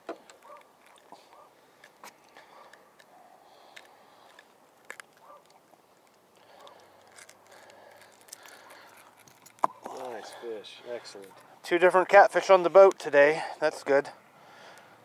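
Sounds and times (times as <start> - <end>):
faint clicks and rustles of handling: 0.0 - 11.6.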